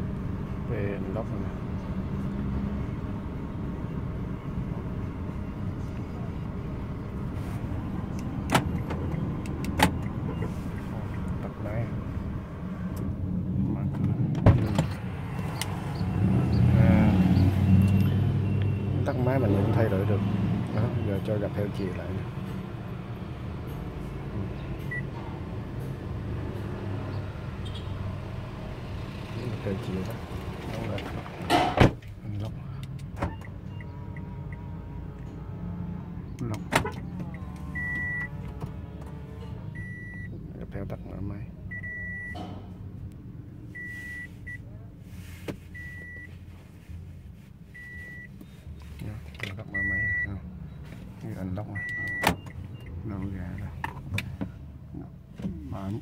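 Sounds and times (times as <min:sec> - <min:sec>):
low hum in car cabin: 0:00.0 - 0:25.8, 0:28.9 - 0:56.0
car cabin hum: 0:04.6 - 0:16.2, 0:29.2 - 0:40.5.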